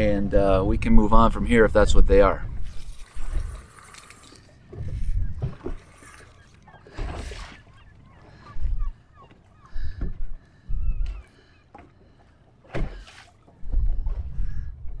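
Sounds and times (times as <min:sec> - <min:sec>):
water lapping against boat hull: 0:02.4 - 0:15.0
wind buffeting microphone: 0:04.7 - 0:05.8, 0:08.2 - 0:09.0, 0:09.6 - 0:11.3, 0:12.8 - 0:15.0.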